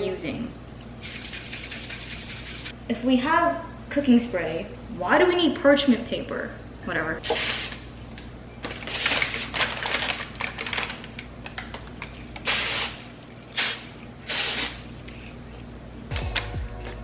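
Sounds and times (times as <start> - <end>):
paper crinkling: 8.6 - 12.4.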